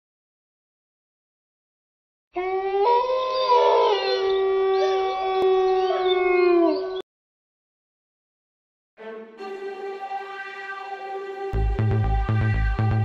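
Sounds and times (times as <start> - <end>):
wolves howling: 2.4 - 7.0.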